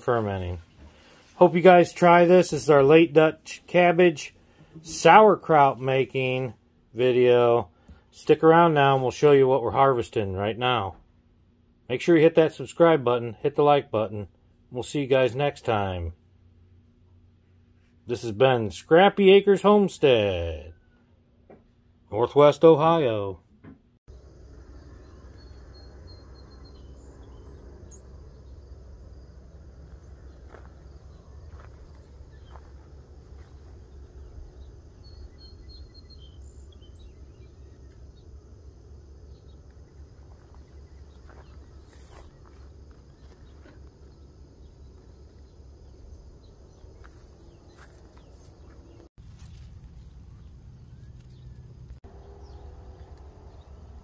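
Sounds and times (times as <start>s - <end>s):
faint bird chirps: 24.1s - 54.0s
insect sounds: 24.1s - 54.0s
steady low rumble: 24.1s - 54.0s.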